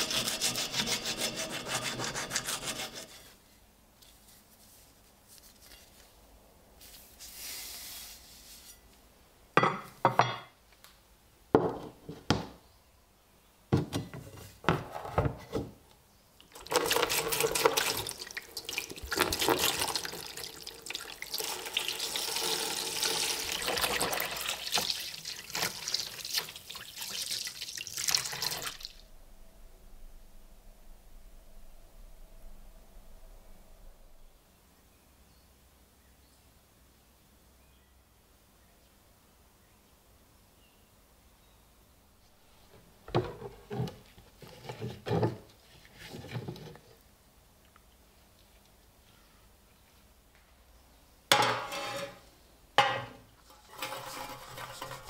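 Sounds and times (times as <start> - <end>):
file rasping on metal: 0.0 - 3.3
liquid pouring and splashing: 16.5 - 29.0, 53.5 - 55.0.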